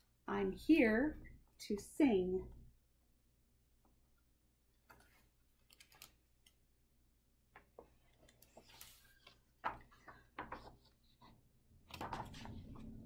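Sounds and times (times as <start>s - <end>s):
page turning rustle: 7.8s - 13.0s.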